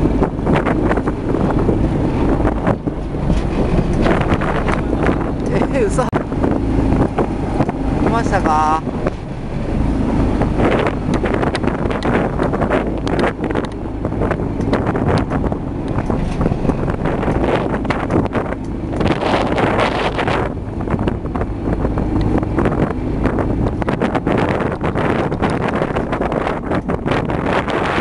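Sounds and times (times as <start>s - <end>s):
steady low rumble: 0.0s - 28.0s
wind buffeting microphone: 0.0s - 28.0s.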